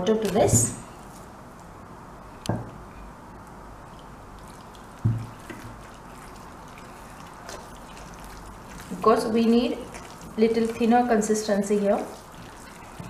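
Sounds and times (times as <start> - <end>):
liquid dripping: 3.8 - 13.0.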